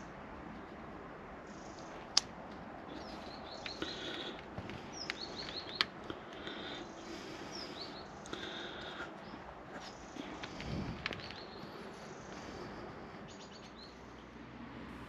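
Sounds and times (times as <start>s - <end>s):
sharp clicks of wire clips: 1.8s - 2.6s
birds chirping and whistling: 2.9s - 14.2s.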